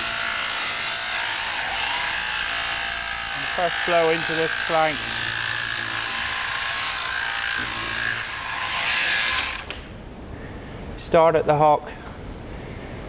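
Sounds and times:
shearing machine buzzing: 0.0s - 9.9s.

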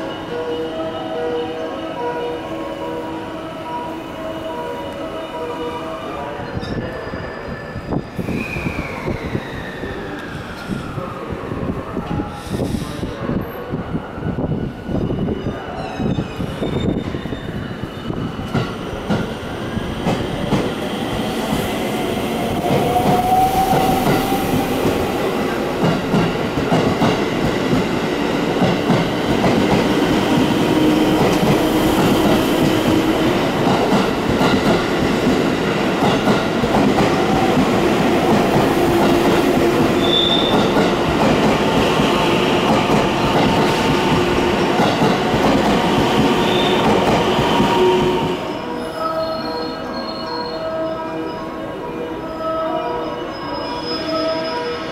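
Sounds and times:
train wheels on rails: 6.6s - 48.6s.

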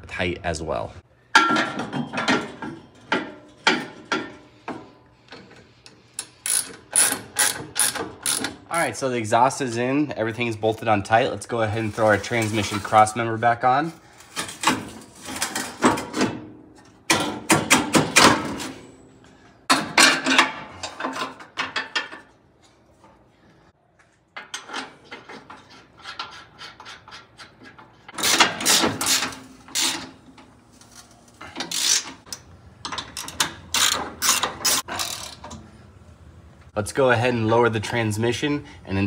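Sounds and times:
ratchet wrench clicking: 6.2s - 8.6s, 31.6s - 35.5s.

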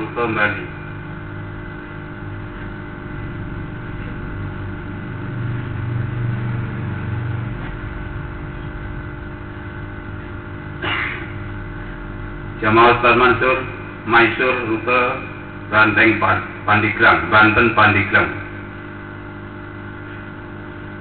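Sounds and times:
sound system hum and hiss: 0.0s - 21.0s
low rumble: 1.3s - 12.7s.

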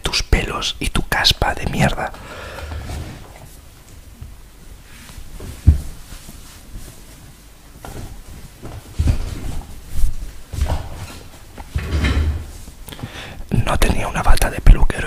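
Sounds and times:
bathrobe cloth rustling: 2.5s - 11.7s
dull thumps: 5.4s - 6.1s.

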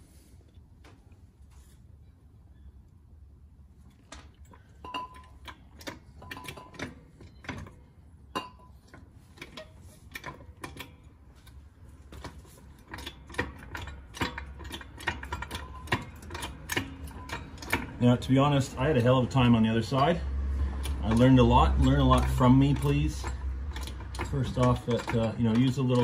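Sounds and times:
low steady hum: 0.0s - 26.0s
metal tools clicking and tapping: 4.0s - 19.6s, 20.8s - 26.0s.

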